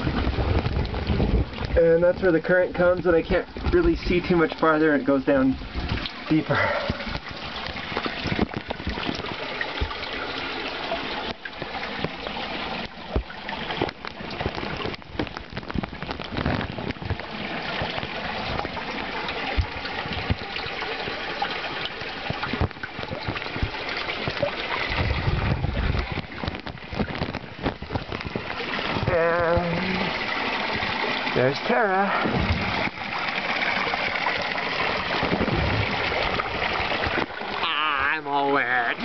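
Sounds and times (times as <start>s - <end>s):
water rushing and splashing: 0.0s - 39.0s.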